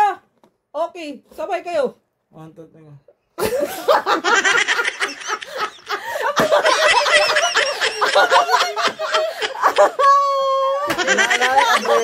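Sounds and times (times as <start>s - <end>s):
group of people laughing: 3.4s - 12.0s.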